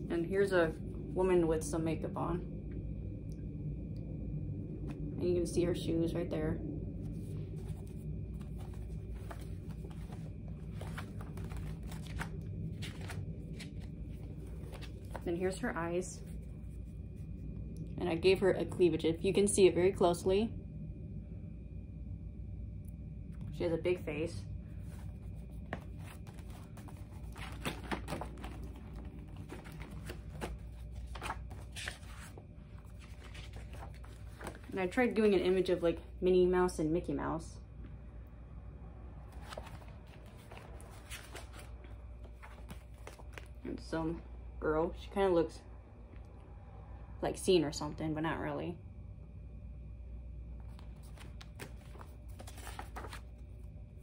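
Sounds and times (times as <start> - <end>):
steady low hum: 0.0 - 54.0
paper rustling: 7.1 - 15.3, 24.8 - 35.2, 39.3 - 43.6, 50.6 - 53.7
sketchbook pages turning: 7.1 - 15.3, 24.8 - 35.2, 39.2 - 43.6, 50.6 - 53.7.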